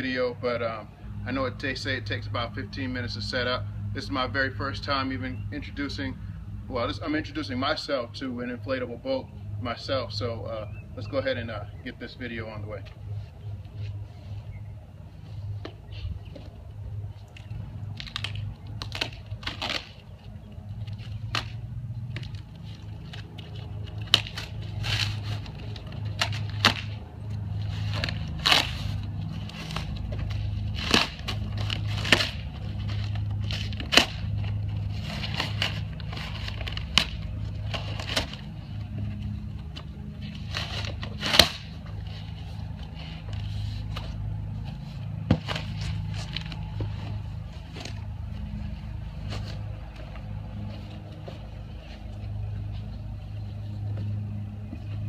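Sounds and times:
steady low hum: 0:00.0 - 0:55.0
packing crackling: 0:17.2 - 0:53.2
cardboard box being torn open: 0:18.0 - 0:20.0.

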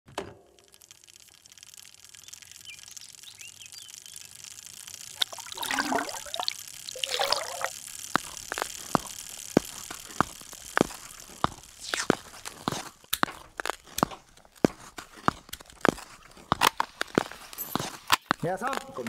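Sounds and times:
sharp ticks: 0:00.6 - 0:18.9
water trickling and pouring: 0:05.1 - 0:08.3.

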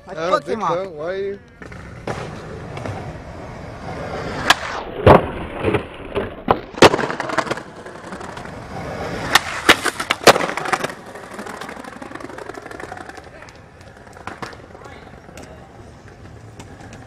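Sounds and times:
skateboard wheels rolling on concrete: 0:00.0 - 0:17.0
skateboard clacks and bangs: 0:04.4 - 0:08.5, 0:09.1 - 0:15.4.

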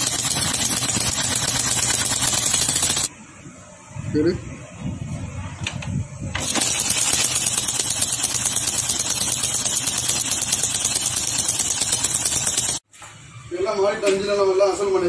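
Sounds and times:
engine valvetrain ticking: 0:00.0 - 0:03.1.

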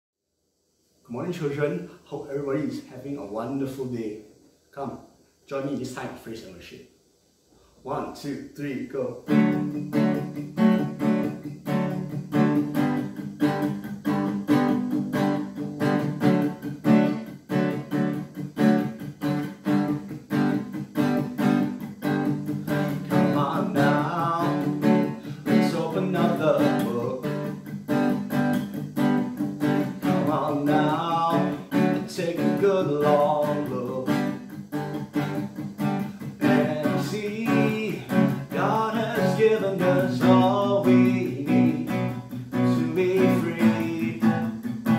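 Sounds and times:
acoustic guitar strumming: 0:08.9 - 0:44.9
man singing: 0:23.0 - 0:27.6, 0:30.0 - 0:34.4, 0:36.4 - 0:44.9.

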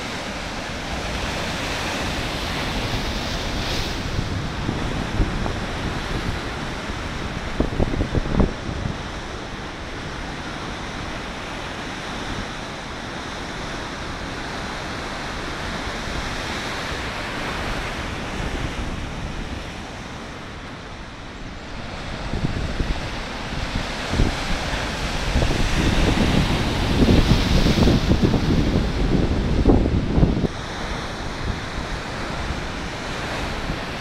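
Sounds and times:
wind buffeting microphone: 0:00.0 - 0:11.0, 0:14.2 - 0:34.0
surf breaking on rocks: 0:21.7 - 0:34.0.

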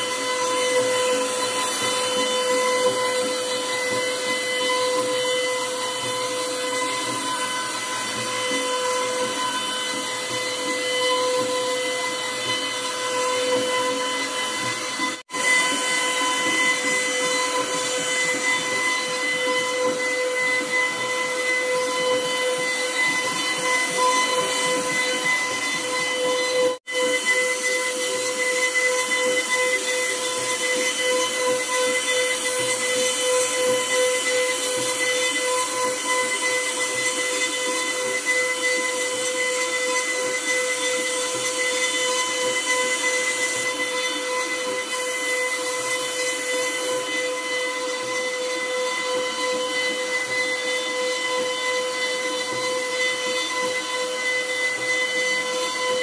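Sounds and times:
router bit carving wood: 0:00.0 - 0:56.0
wood router spindle whine: 0:00.0 - 0:56.0.

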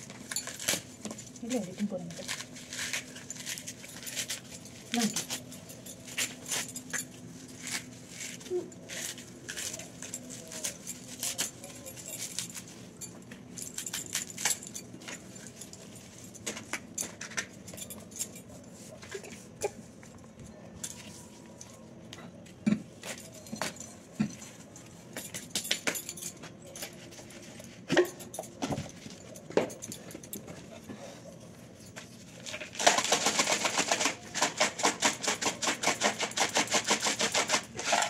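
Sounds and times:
metallic clinks of utensils: 0:22.7 - 0:30.4.

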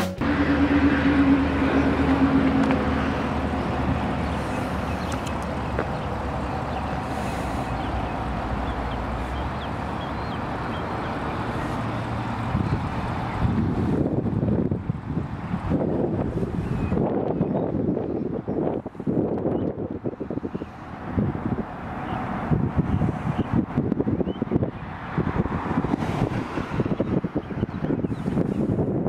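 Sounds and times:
car engine passing: 0:00.0 - 0:14.7
wind noise on microphone: 0:00.1 - 0:29.0.

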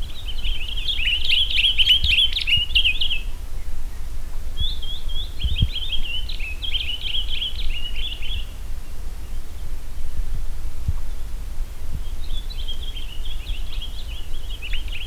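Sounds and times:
songbird twittering: 0:00.0 - 0:15.0.

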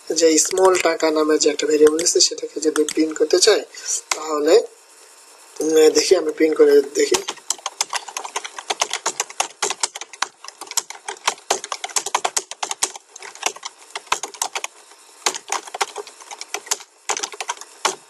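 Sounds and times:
computer keyboard typing: 0:00.4 - 0:03.3, 0:07.0 - 0:18.0.

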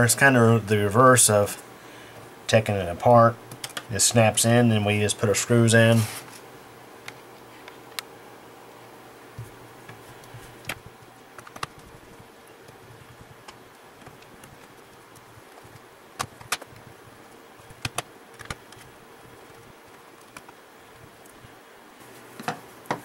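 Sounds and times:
faint steady hum: 0:00.0 - 0:23.0
plastic cover clicking: 0:11.4 - 0:11.8, 0:15.7 - 0:16.8.

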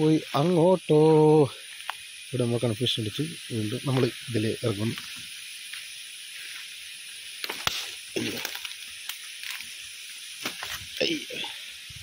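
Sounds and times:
steady hiss: 0:00.0 - 0:12.0
footsteps crunching dry leaves: 0:10.4 - 0:11.0.

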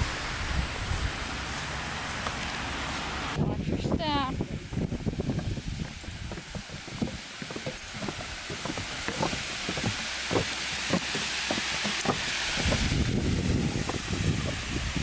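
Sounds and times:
rushing water from spillway: 0:00.0 - 0:15.0
footsteps on wooden steps: 0:04.7 - 0:14.9.

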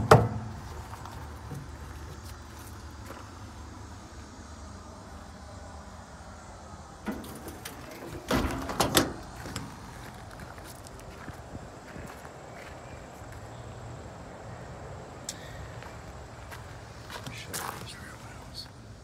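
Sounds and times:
metal door slamming shut: 0:00.0 - 0:00.5, 0:07.0 - 0:09.4.

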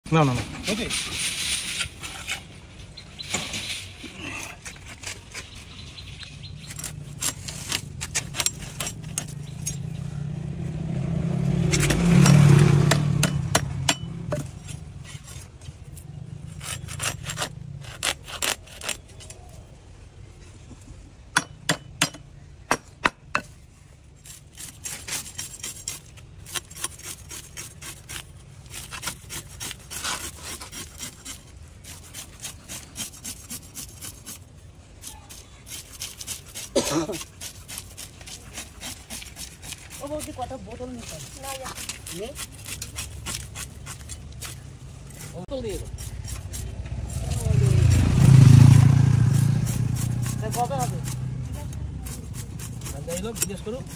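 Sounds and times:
passing vehicle hum: 0:08.8 - 0:16.6, 0:44.6 - 0:53.9
fish scales scraping on blade: 0:24.2 - 0:34.4, 0:35.0 - 0:47.9.

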